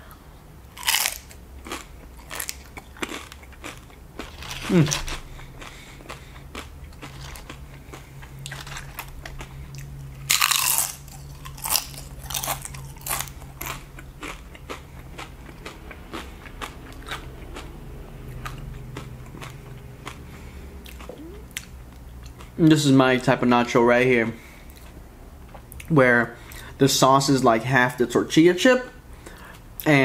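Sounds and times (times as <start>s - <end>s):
chewing crunchy chips: 0.7s - 22.8s.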